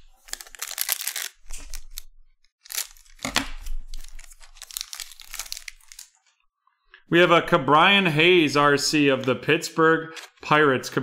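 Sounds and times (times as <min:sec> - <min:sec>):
foil wrapper tearing and crinkling: 0:00.1 - 0:02.0, 0:02.6 - 0:06.2.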